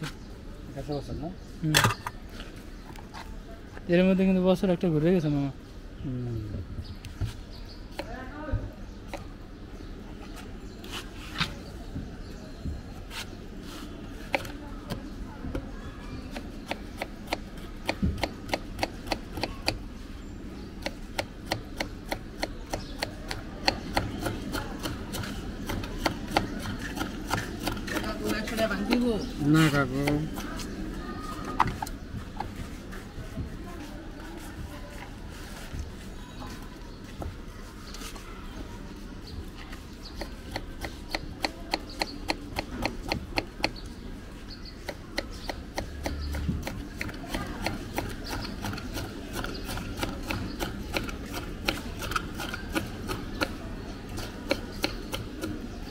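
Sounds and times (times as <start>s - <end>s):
knife chopping on wooden board: 16.3s - 19.8s, 20.8s - 29.1s, 54.2s - 55.6s.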